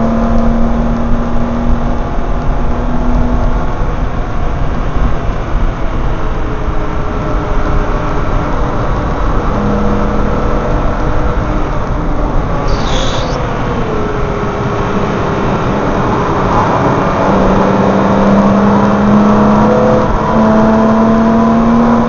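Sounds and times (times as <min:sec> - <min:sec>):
wind and road rush: 0:00.0 - 0:22.0
brief high-pitched sound: 0:12.6 - 0:13.4.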